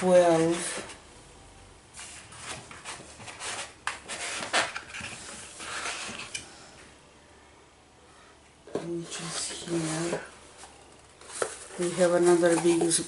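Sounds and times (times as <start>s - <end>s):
cardboard rustling: 2.0s - 6.3s, 9.1s - 13.0s.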